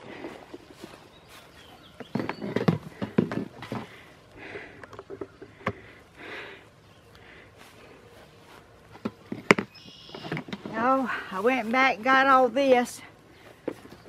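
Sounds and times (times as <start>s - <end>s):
footsteps on pine straw: 0.0s - 4.2s, 6.7s - 14.0s
folding chair and bucket knocking: 2.0s - 4.0s.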